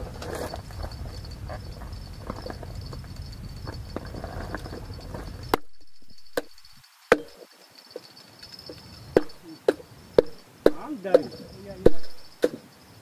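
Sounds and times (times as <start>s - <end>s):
sharp knocks: 5.5s - 7.4s, 9.1s - 12.7s.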